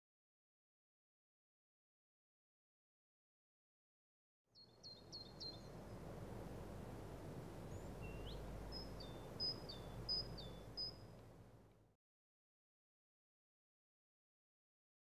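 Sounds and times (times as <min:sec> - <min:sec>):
steady low rumble: 0:05.3 - 0:11.6
birds calling: 0:07.6 - 0:11.2.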